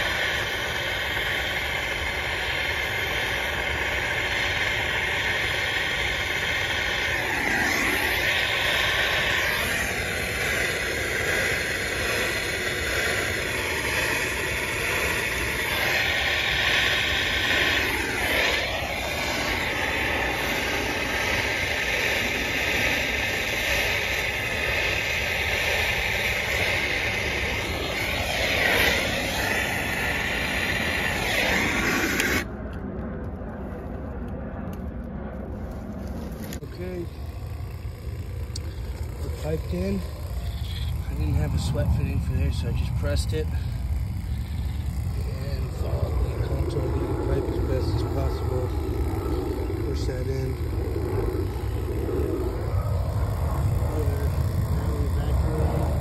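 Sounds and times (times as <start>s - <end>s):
gas torch flame rushing: 0.0s - 32.8s, 35.4s - 56.0s.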